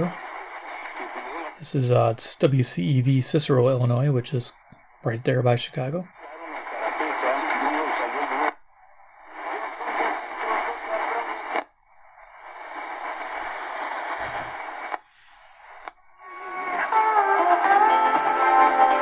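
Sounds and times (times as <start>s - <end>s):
radio station voice: 0.0s - 0.3s, 0.9s - 8.6s, 9.4s - 11.6s, 13.1s - 15.7s
radio tuning click: 0.0s - 16.8s
radio static hiss: 0.0s - 17.0s.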